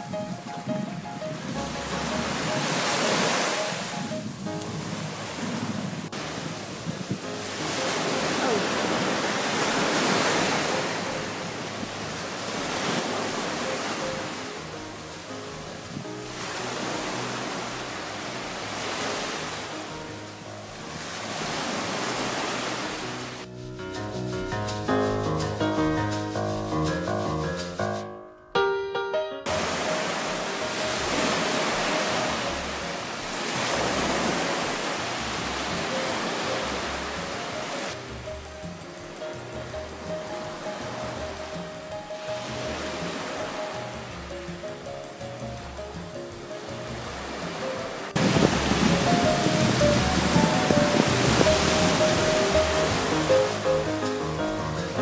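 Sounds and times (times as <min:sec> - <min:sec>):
waves washing up a beach: 0:00.0 - 0:23.5, 0:29.5 - 0:55.0
faint background music: 0:29.5 - 0:55.0.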